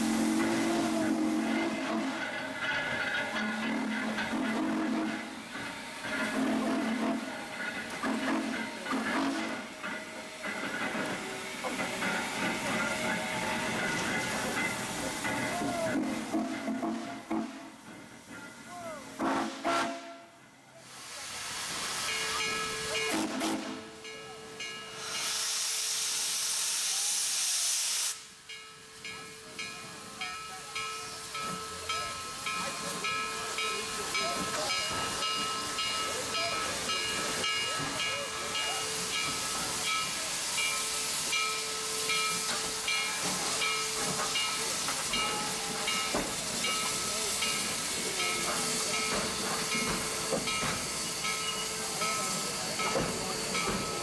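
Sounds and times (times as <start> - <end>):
steam locomotive hissing: 0.0 - 54.0
loud burst of venting steam: 20.8 - 23.8, 24.9 - 28.4, 34.0 - 54.0.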